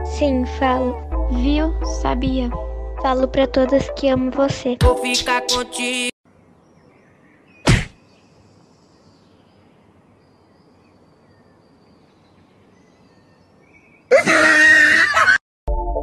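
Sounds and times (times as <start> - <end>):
outdoor background noise: 6.2 - 15.4
sharp thump: 7.7 - 8.0.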